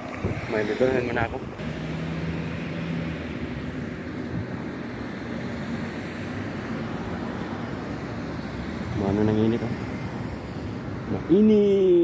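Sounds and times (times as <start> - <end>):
wind buffeting microphone: 0.0 - 1.6
road noise: 0.0 - 12.0.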